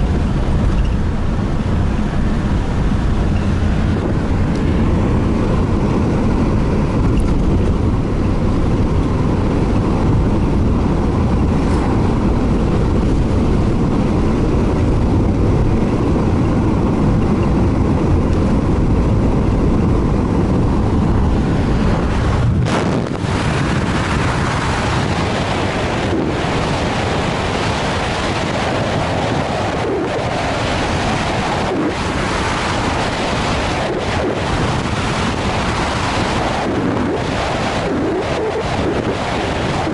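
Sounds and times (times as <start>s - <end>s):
car road noise rumble: 0.0s - 39.9s.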